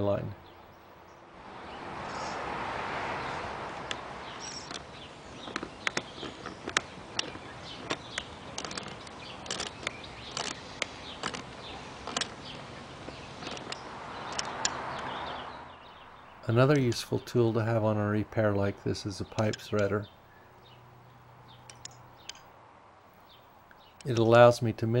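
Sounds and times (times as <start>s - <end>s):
soft rushing noise: 0.0s - 24.5s.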